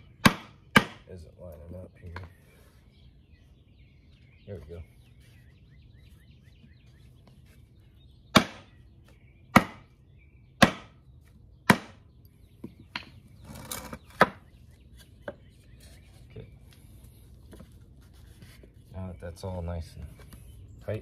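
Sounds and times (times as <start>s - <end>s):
hammer striking wooden frame: 0.2s - 1.1s, 8.3s - 8.7s, 9.5s - 9.9s, 10.6s - 11.0s, 11.6s - 12.0s
wood scraping on concrete: 13.3s - 20.5s.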